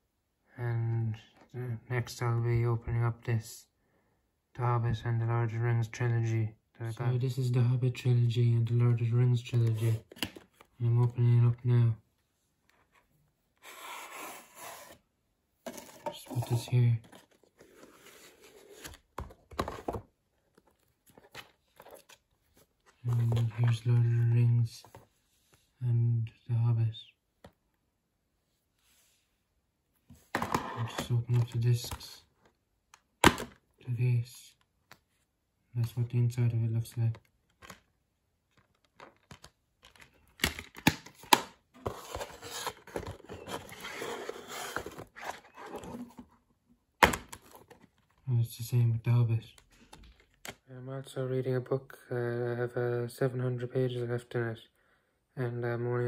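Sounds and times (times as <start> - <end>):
case sliding out of cardboard sleeve: 13.6 - 15.0, 41.8 - 46.2
cases knocking and scraping on wood: 15.7 - 17.4.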